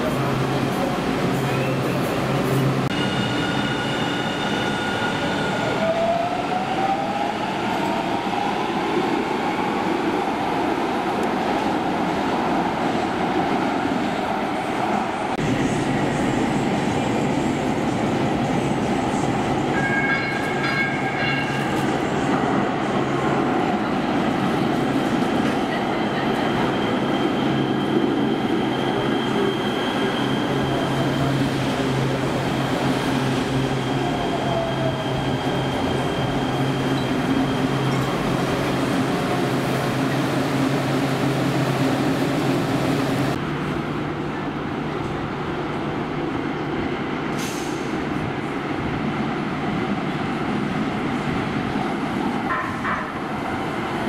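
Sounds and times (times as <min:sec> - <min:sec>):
high wheel squeal: 0:26.4 - 0:38.3.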